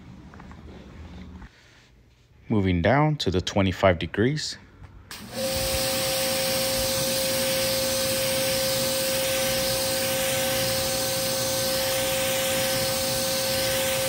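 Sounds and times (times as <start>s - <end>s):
pressure washer motor whine: 5.1s - 14.0s
high-pressure water spray hissing: 5.2s - 14.0s.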